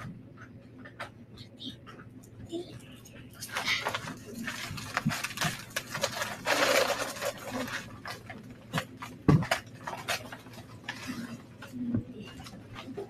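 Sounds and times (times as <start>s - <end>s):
paper rustling: 3.4s - 13.0s.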